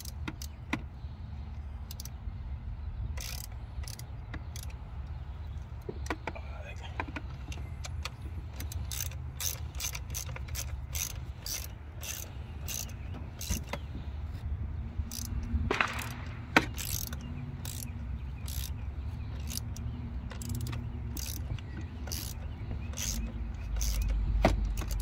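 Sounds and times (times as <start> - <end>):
ratchet wrench clicking: 0.0 - 0.8, 1.8 - 2.2, 3.1 - 4.8, 7.1 - 14.4, 15.0 - 25.0.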